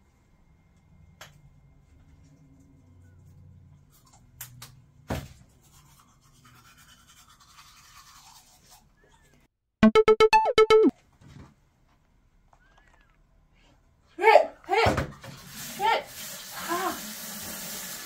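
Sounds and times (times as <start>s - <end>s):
toothbrush scrubbing teeth: 5.5s - 9.3s.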